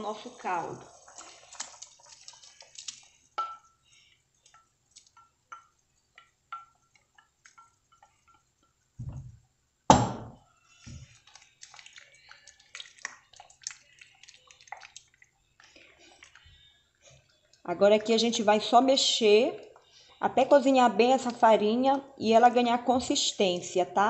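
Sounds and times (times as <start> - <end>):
broth simmering and bubbling: 0.0 - 22.2.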